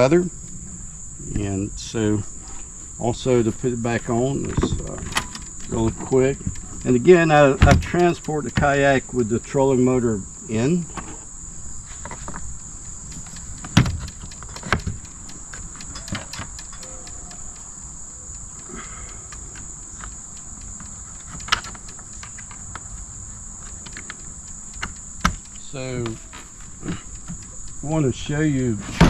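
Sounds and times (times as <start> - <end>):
crickets chirping: 0.0 - 29.0
metal clicks and knocks: 4.1 - 9.4, 13.1 - 17.7, 19.6 - 23.0.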